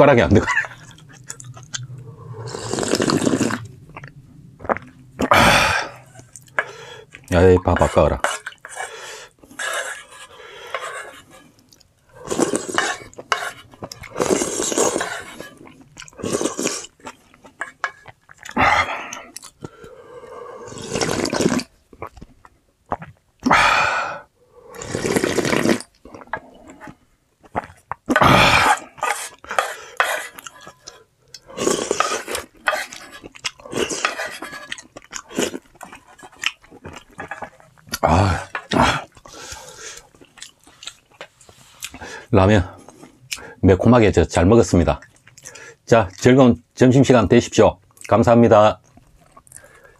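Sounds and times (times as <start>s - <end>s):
chewing and slurping noodles: 0.6s - 23.2s, 24.7s - 42.2s, 48.8s - 49.9s.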